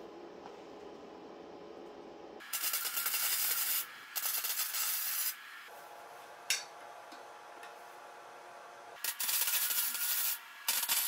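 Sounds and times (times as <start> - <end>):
welder arc crackling: 2.4 - 5.4, 9.0 - 11.0.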